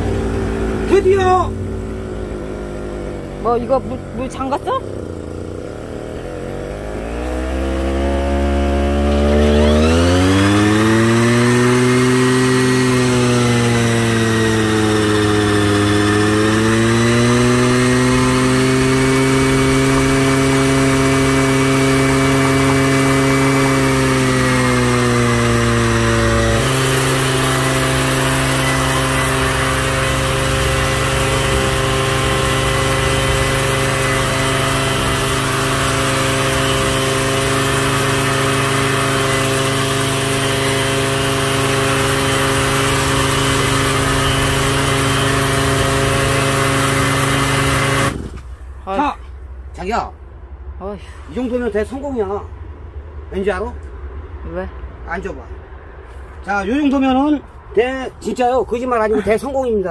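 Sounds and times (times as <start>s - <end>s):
engine driving sprayer pump: 0.0s - 49.4s.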